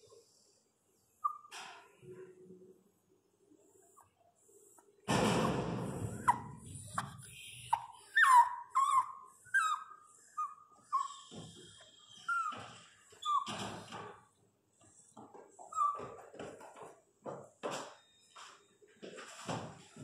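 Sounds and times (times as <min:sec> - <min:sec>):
dog whimpering: 0:06.1 - 0:13.6.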